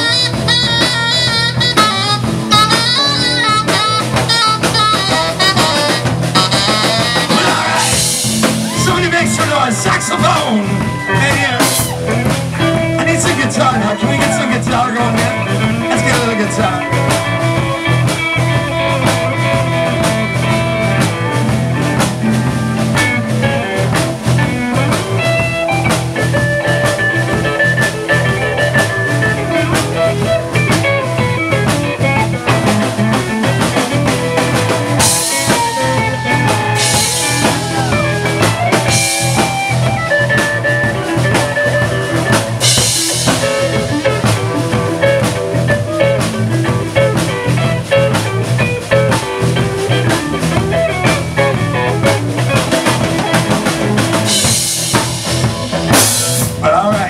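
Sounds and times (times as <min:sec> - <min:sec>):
saxophone held notes: 0:00.0 - 0:08.0
live rock band playing: 0:00.0 - 0:57.0.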